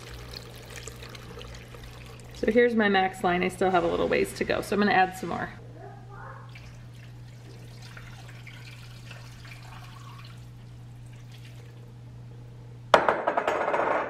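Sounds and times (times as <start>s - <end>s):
water pouring into a pot: 0.0s - 2.4s, 6.5s - 11.9s.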